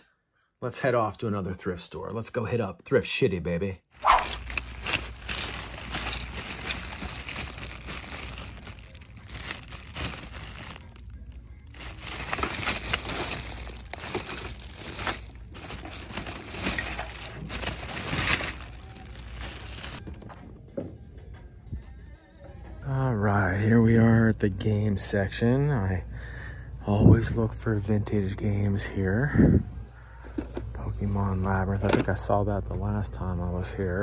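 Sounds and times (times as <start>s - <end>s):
plastic bags crinkling: 4.0s - 20.1s.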